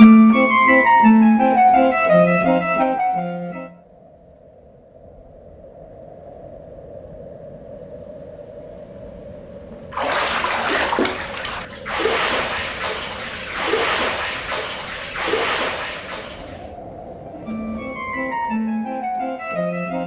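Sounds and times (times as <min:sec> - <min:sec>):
bathwater splashing and sloshing: 0:09.9 - 0:16.7.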